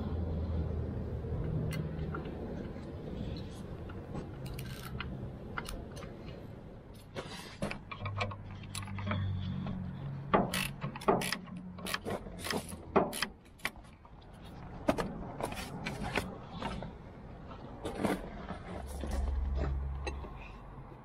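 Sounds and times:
wrench clicking and clanking metal: 4.4 - 6.1, 10.3 - 13.9.

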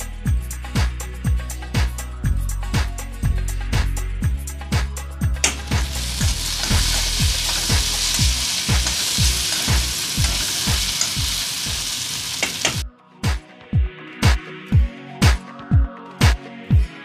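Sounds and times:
music beat with low thumps: 2.8 - 11.3
okra sizzling in a wok: 5.4 - 12.8
metal spatula stirring: 5.5 - 12.8.

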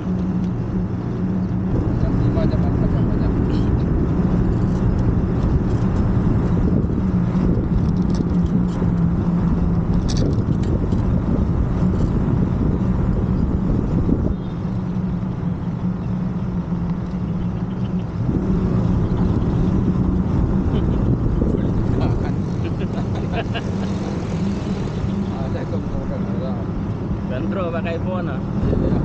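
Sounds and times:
heavy low rumble: 0.0 - 29.0
moped engine humming: 0.0 - 29.0.

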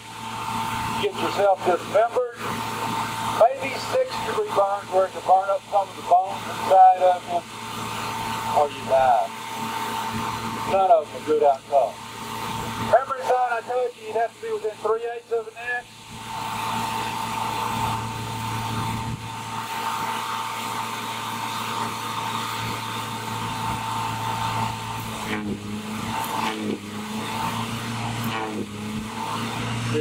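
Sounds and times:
electrical arc buzzing: 0.0 - 30.0
sharp electrical snaps: 21.6 - 28.6.

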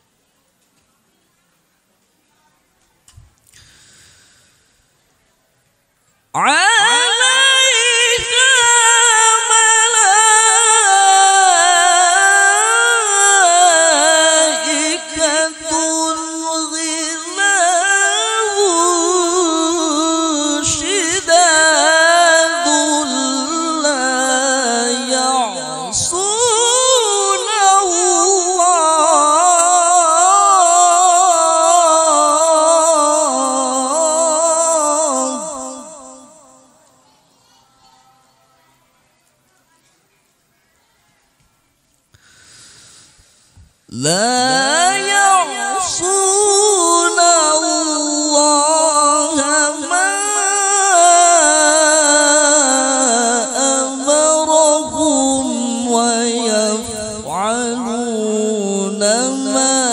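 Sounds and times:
quick breath: 3.5 - 5.0, 42.1 - 43.8
man reciting melodically: 6.4 - 36.8, 43.8 - 59.9.

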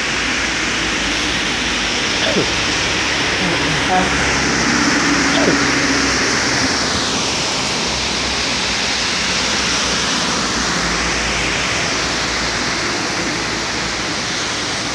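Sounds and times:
heavy rain hissing: 0.0 - 14.9
vehicles passing on wet road: 5.7 - 14.9.

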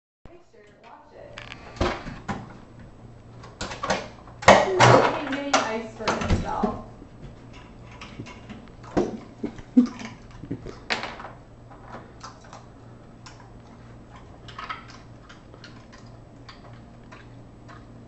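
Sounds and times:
faint low hum: 0.3 - 18.0
dog chewing ice cubes: 12.0 - 18.0.

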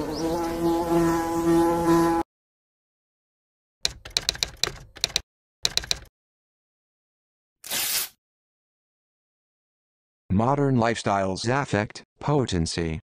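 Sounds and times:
typewriter key clicks: 3.9 - 6.1.

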